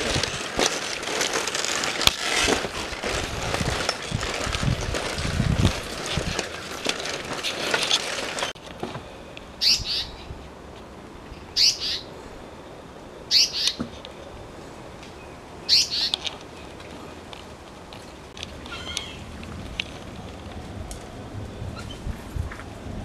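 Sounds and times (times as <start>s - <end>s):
crunching footsteps: 0.0s - 9.1s, 16.1s - 21.1s
handling noise: 0.0s - 9.2s.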